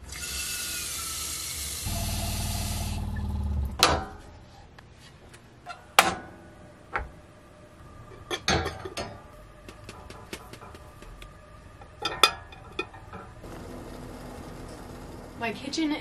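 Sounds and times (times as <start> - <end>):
glass teapot clinking on metal grates: 12.0 - 13.3.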